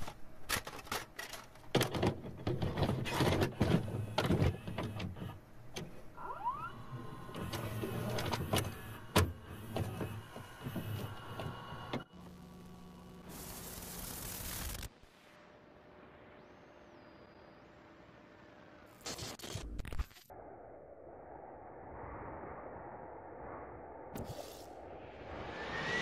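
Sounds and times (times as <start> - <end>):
tape hiss: 11.0 - 19.3.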